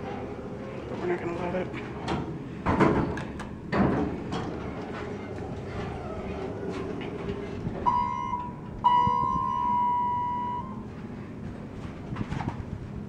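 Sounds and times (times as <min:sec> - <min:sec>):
low hum: 0:04.5 - 0:13.0
elevator buzzer beeping: 0:07.8 - 0:10.9.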